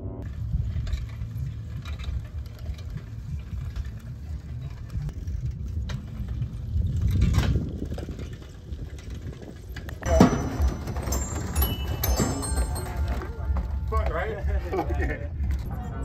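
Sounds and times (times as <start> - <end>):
wind buffeting microphone: 0.2 - 12.0.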